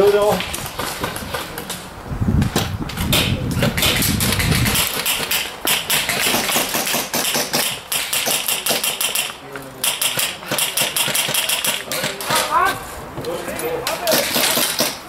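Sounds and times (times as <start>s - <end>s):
airsoft gunfire: 3.1s - 12.6s, 14.1s - 15.0s.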